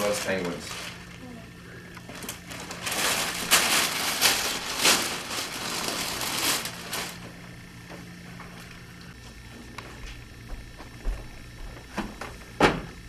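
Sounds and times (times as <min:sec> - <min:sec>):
plastic bag rustling: 0:00.0 - 0:01.3, 0:02.0 - 0:07.5.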